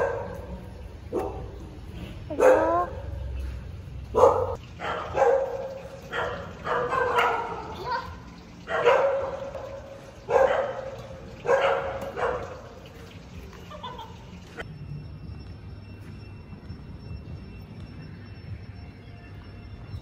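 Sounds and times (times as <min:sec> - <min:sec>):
dog barking: 0:00.0 - 0:00.5, 0:01.1 - 0:01.6, 0:02.3 - 0:03.2, 0:04.1 - 0:07.8, 0:08.6 - 0:12.8.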